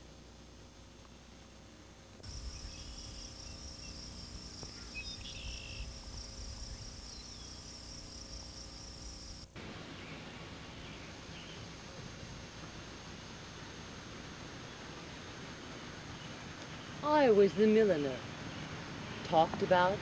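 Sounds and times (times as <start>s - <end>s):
high-pitched insect trill: 0.0s - 20.0s
bird chirps: 2.5s - 7.7s
wind rumble on microphone: 4.7s - 7.6s.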